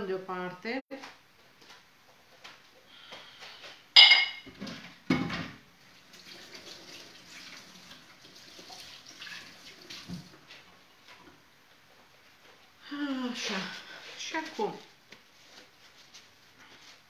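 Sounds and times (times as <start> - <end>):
dish clinking in sink: 4.0 - 5.5
tap running water: 5.9 - 11.4.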